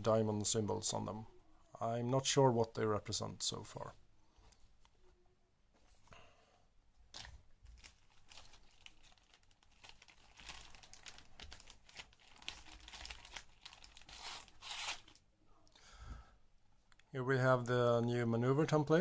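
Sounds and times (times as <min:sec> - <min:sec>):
plastic bag crinkling: 0:07.1 - 0:15.2.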